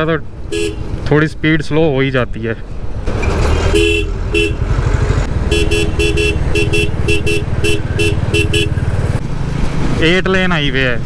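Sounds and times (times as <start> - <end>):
motorcycle engine running: 2.8 - 9.9
vehicle horn short beeps: 3.6 - 4.6, 5.5 - 8.8.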